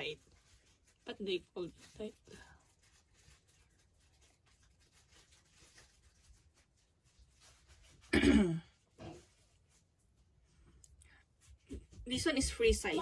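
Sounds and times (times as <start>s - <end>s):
faint clicks and rustles: 0.0s - 8.1s
woman clearing her throat: 8.1s - 8.8s.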